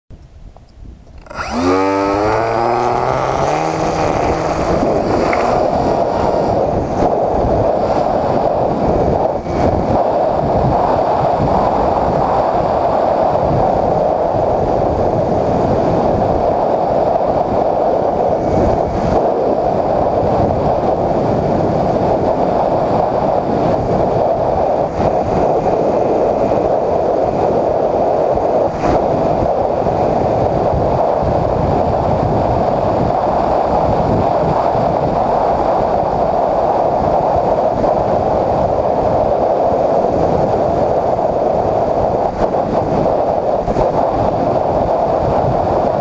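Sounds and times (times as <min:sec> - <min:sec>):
wind rush on microphone: 0:00.1 - 0:46.0
electric motor and propeller whine: 0:01.1 - 0:10.4.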